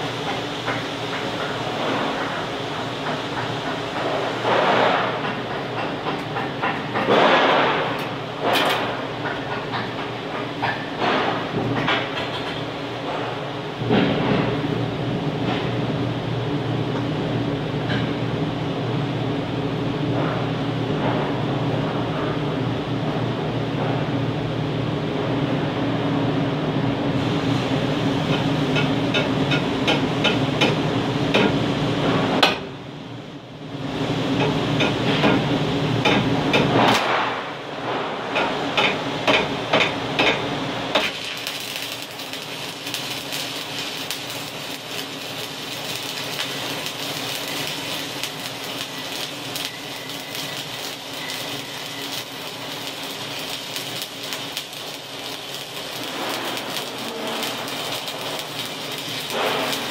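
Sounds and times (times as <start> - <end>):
welding arc crackling: 0.0 - 13.3, 38.3 - 59.9
steady hum: 0.0 - 59.9.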